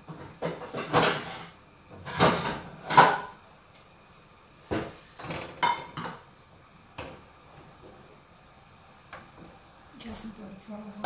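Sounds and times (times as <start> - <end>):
pan knocking and clattering: 0.1 - 3.4, 4.7 - 6.2.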